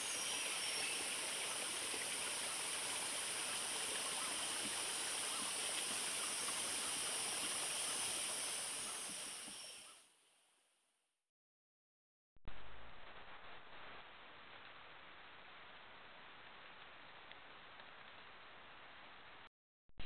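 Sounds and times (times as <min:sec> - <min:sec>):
high hiss: 0:00.0 - 0:10.0.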